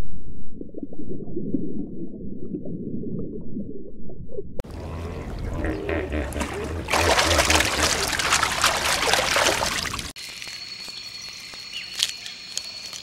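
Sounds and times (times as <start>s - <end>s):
muffled underwater rumble: 0.0s - 8.7s
underwater bubbling blips: 0.6s - 9.8s
low steady hum: 4.5s - 9.9s
water above the surface: 4.6s - 10.2s.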